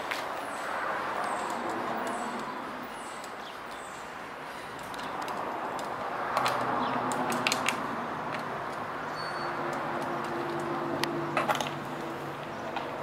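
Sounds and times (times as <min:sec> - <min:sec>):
outdoor background noise: 0:00.0 - 0:13.0
sharp metallic clicks: 0:04.8 - 0:11.8.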